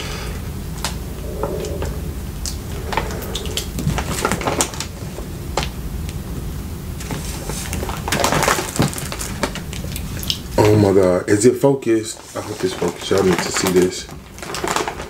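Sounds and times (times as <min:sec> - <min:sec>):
steady low hum: 0:00.0 - 0:11.3.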